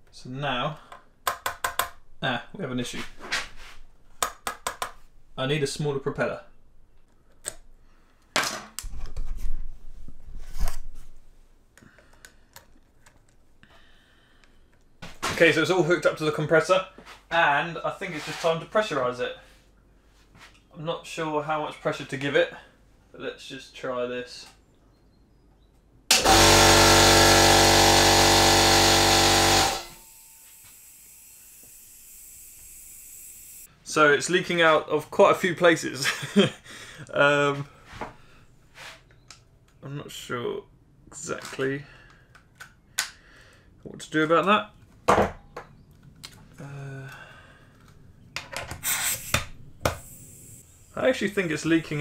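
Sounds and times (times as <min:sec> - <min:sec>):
air compressor running: 0:26.1 - 0:33.7, 0:48.8 - 0:51.4
faint compressed air hiss: 0:48.8 - 0:52.0.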